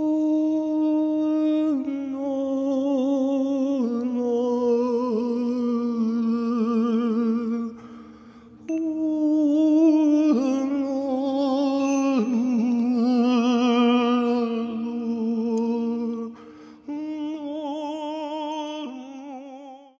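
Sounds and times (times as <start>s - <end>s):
person humming sustained notes: 8.6s - 20.0s.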